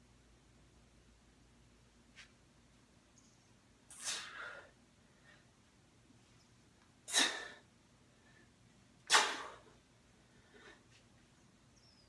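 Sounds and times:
man exhaling sharply: 3.9s - 4.7s.

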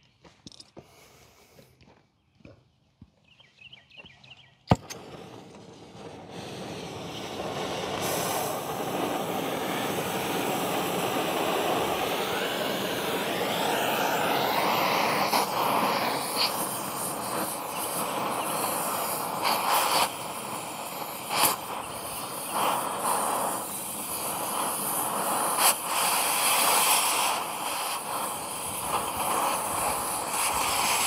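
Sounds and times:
torch igniter click: 4.7s - 5.6s
cutting torch hissing: 4.7s - 31.0s.

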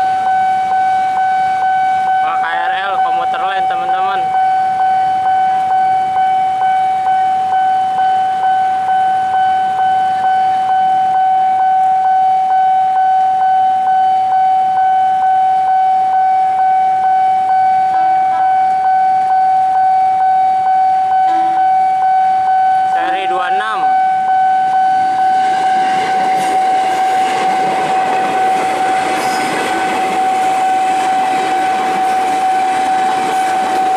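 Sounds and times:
level crossing warning alarm: 0.0s - 33.9s.

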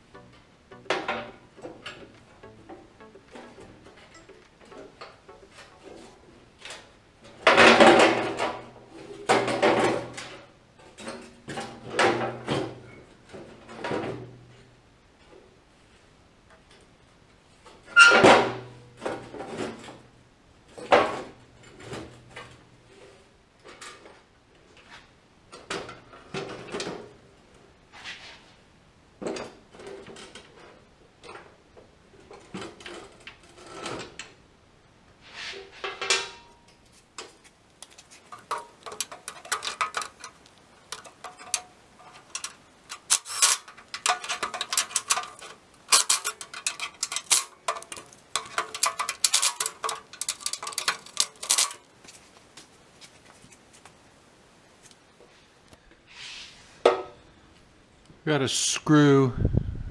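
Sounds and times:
metal hand tools clinking on steel: 38.3s - 51.9s.

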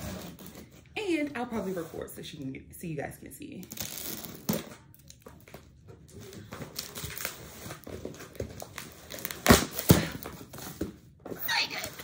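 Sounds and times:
tape and plastic wrap tearing: 0.0s - 0.7s, 3.6s - 5.6s, 6.4s - 10.2s.

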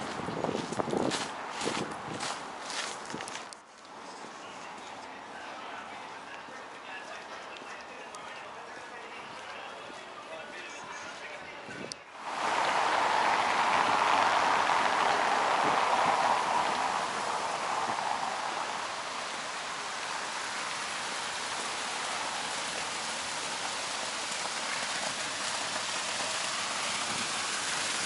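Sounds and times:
fountain water splashing: 12.2s - 28.0s.

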